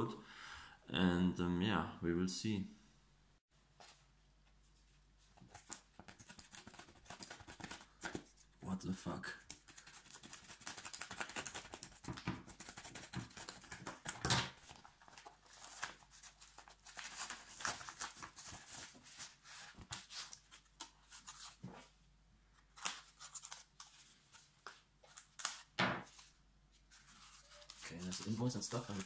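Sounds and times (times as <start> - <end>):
plastic mailer crinkling: 27.2 - 29.0.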